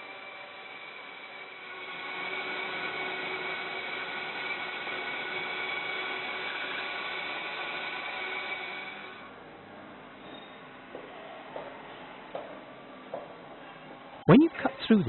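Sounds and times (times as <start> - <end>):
electric chainsaw cutting boards: 0.0 - 9.3.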